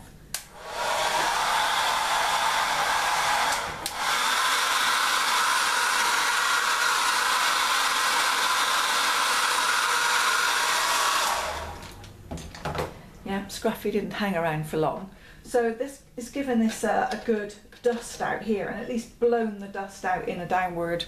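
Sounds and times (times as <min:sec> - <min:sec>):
hair dryer blowing air: 0:00.4 - 0:12.0.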